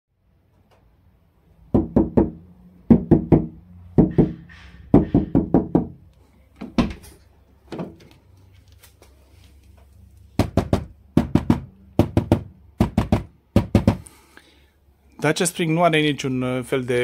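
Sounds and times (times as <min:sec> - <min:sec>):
knuckles knocking on car door: 0:01.8 - 0:04.4, 0:05.0 - 0:06.0, 0:10.4 - 0:14.0.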